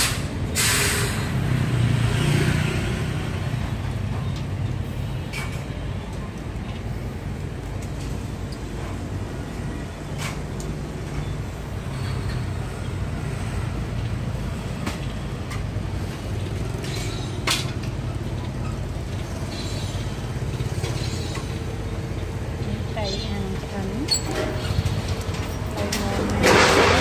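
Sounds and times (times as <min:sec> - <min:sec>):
street traffic rumble: 0:00.0 - 0:27.0
sharp clicks and knocks: 0:14.8 - 0:19.6.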